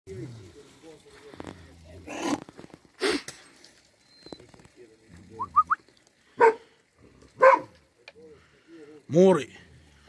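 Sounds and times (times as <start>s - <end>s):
large dog barking: 6.4s - 6.7s, 7.3s - 7.8s.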